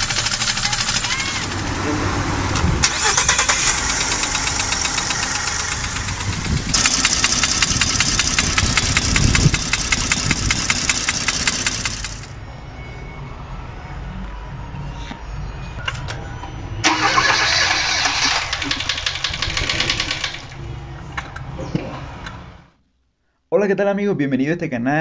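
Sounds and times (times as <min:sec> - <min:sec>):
car engine knocking: 0:00.0 - 0:02.0, 0:02.8 - 0:12.4.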